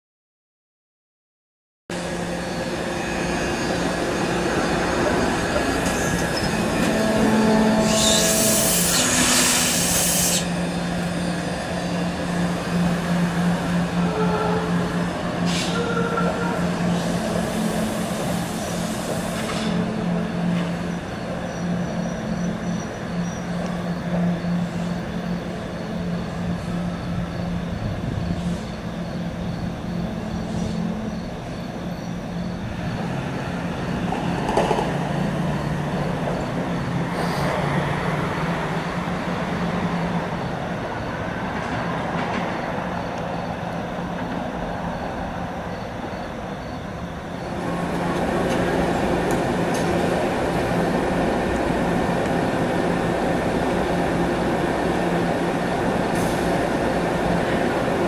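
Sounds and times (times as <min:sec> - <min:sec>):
streetcar running low hum: 0:01.9 - 0:58.0
faint wheel squeal: 0:06.0 - 0:10.5.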